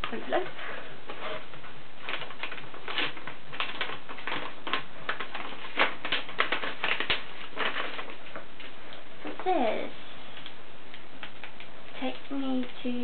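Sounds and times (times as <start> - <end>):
packaging crinkling: 1.1 - 9.5.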